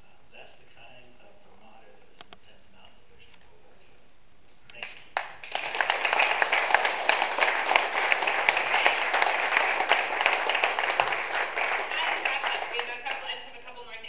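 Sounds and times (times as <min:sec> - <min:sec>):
audience applauding: 0:04.9 - 0:13.4.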